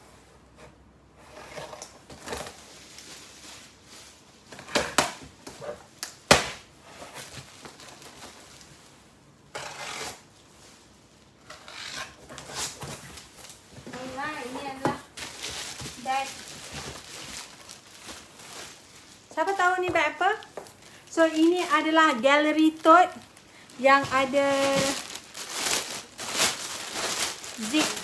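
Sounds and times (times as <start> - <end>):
cardboard boxes rustling and scraping: 6.8 - 8.6, 11.5 - 22.0, 23.8 - 28.0.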